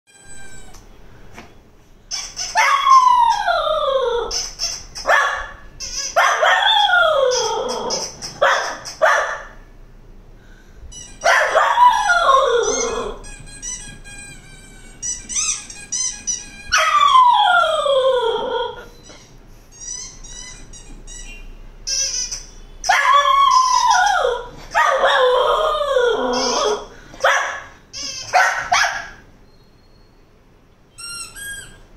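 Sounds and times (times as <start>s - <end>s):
squeaky toy squeaks: 0.1s - 0.9s, 2.0s - 9.6s, 10.9s - 29.2s, 30.9s - 31.9s
dog howling: 2.6s - 4.3s, 6.2s - 8.0s, 11.2s - 13.2s, 16.7s - 18.9s, 22.9s - 26.9s.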